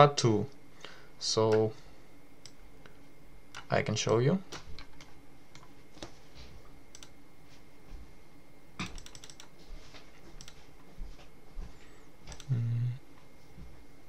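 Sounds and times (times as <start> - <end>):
mouse and keyboard clicks: 8.8 - 9.5, 12.3 - 12.5.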